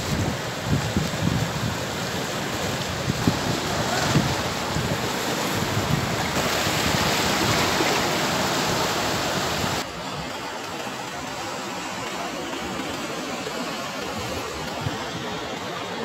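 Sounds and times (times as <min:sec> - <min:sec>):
wind buffeting microphone: 0:00.0 - 0:10.2
surf washing: 0:00.0 - 0:16.0.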